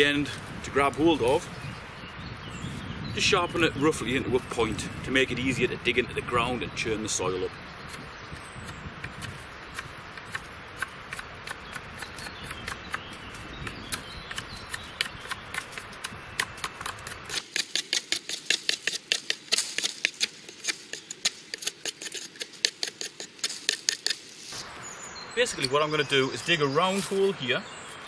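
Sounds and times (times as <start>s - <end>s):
knife whittling wood: 8.7s - 24.6s.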